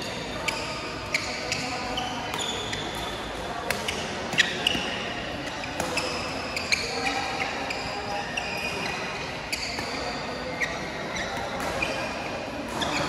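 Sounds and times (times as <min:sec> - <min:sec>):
shoes squeaking on court: 0:00.0 - 0:13.0
racket hitting shuttlecock: 0:05.8 - 0:07.6.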